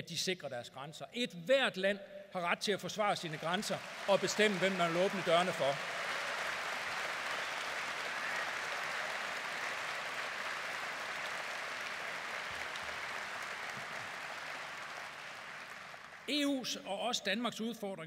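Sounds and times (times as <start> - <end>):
large audience applauding: 3.0 - 16.4.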